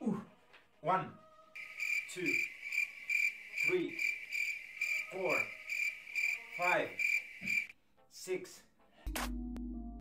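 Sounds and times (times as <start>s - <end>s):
cricket chirping: 1.6s - 7.7s.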